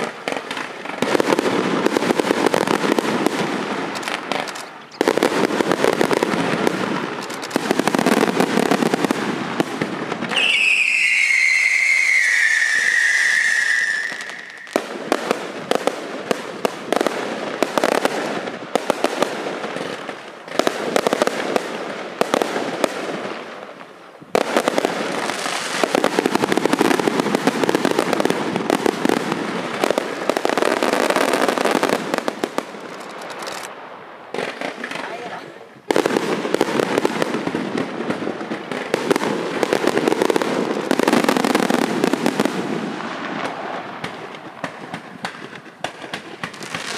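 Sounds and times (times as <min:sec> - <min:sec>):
fireworks crackling and popping: 0:00.0 - 0:46.9
falling firework whistle: 0:10.2 - 0:14.9.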